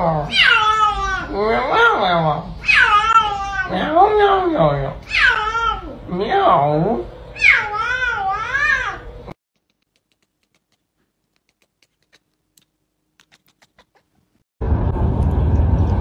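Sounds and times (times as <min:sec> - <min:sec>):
cat meowing: 0:00.3 - 0:01.3, 0:02.6 - 0:03.8, 0:05.1 - 0:05.9, 0:07.4 - 0:09.1.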